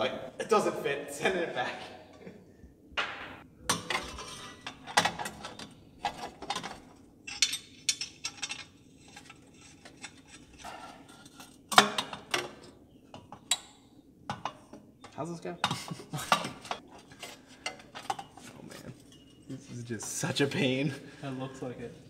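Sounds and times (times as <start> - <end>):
metal pipes clinking and clanking: 3.0 - 20.2.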